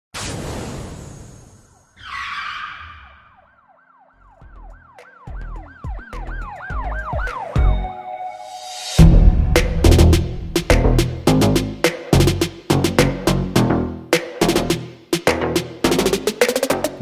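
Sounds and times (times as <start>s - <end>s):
siren-like wail sweeping: 1.3s - 9.6s
whoosh: 8.5s - 11.2s
deep bass hits: 9.0s - 13.2s.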